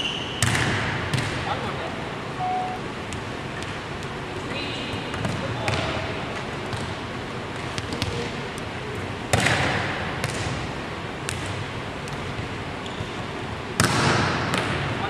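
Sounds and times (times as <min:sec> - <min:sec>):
volleyball loud smack: 0:00.4 - 0:01.4, 0:13.8 - 0:14.8.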